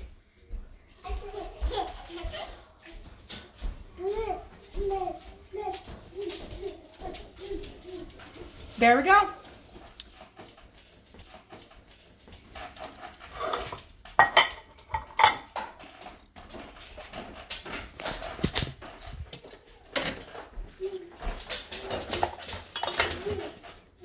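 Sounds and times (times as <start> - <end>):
dishes and utensils clattering: 9.5 - 24.0.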